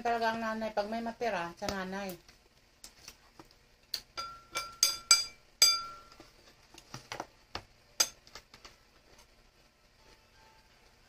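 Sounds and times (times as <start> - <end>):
cutlery clinking on ceramic bowls: 4.2 - 6.2.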